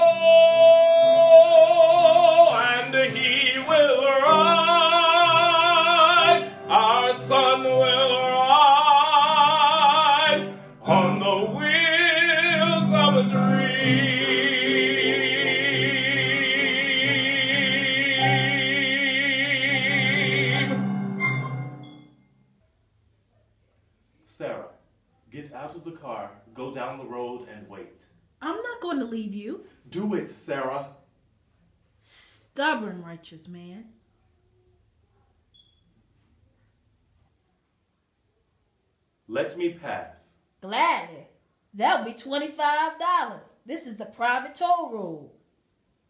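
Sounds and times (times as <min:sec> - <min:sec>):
man singing with vibrato: 0:00.0 - 0:21.8
instrumental accompaniment: 0:02.3 - 0:22.3.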